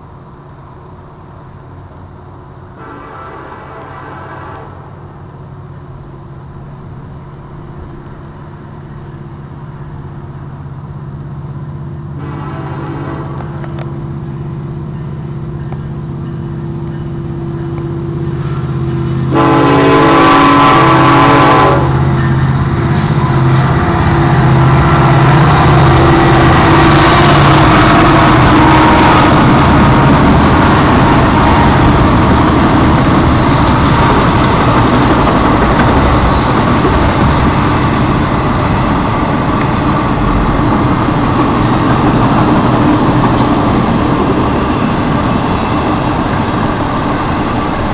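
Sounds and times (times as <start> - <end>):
diesel locomotive engine rumble: 0.0 - 47.9
train horn blasts: 2.8 - 5.0, 12.2 - 13.8, 17.7 - 22.4.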